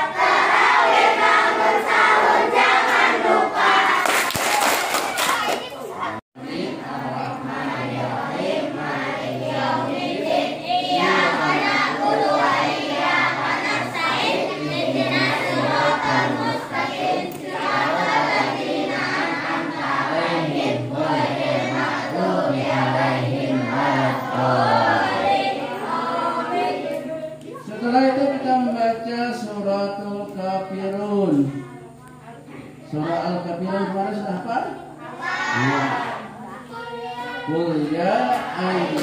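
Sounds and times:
children chanting in unison: 0:00.0 - 0:27.8, 0:35.0 - 0:39.0.

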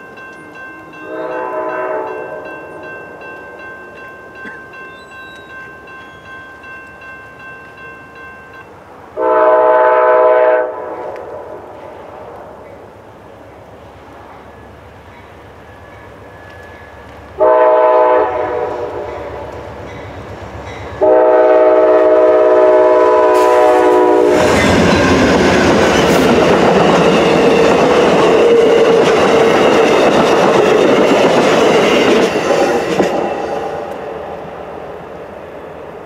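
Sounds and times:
train horn blasts: 0:01.0 - 0:02.8, 0:09.2 - 0:11.7, 0:17.4 - 0:19.5, 0:21.0 - 0:25.4
train wheels on rails: 0:10.6 - 0:36.0.

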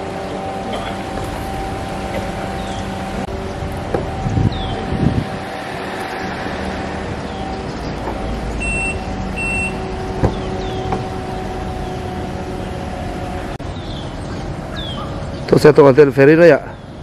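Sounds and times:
engine droning: 0:00.0 - 0:17.0
short high beeps: 0:08.6 - 0:09.8.

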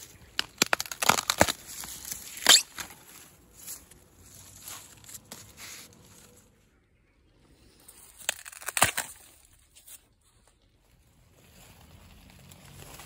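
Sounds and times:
bamboo shoot cracking: 0:00.0 - 0:06.4, 0:08.0 - 0:10.6.

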